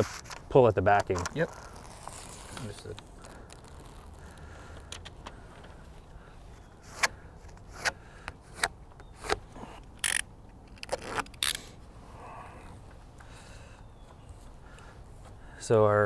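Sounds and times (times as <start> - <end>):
adhesive tape snapping and crackling: 1.0 - 5.4, 8.6 - 11.8.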